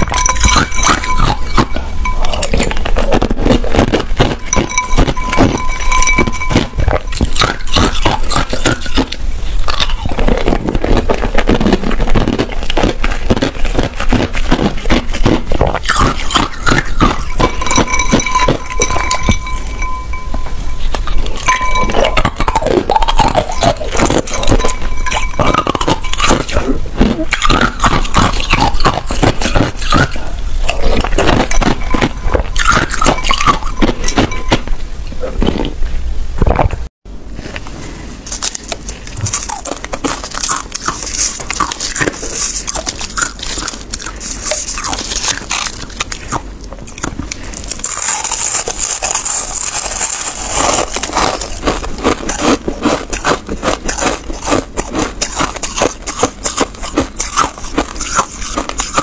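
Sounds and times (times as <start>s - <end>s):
spoon clinking on glass bowl: 0.0s - 3.2s, 4.1s - 9.9s, 16.0s - 26.7s, 31.0s - 34.7s
ice cubes crunching: 0.0s - 34.7s, 38.3s - 59.0s.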